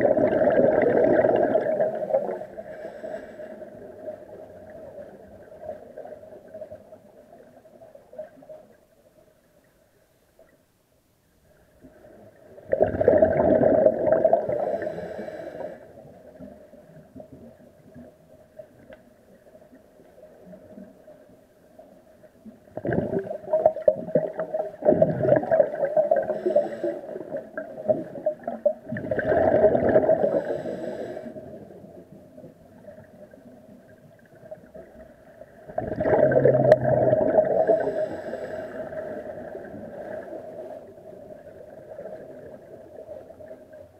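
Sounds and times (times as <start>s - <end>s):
underwater breath bubbles: 0.0s - 4.2s, 12.6s - 16.1s, 22.7s - 31.8s, 35.7s - 41.0s
faint steady hum: 0.0s - 43.9s.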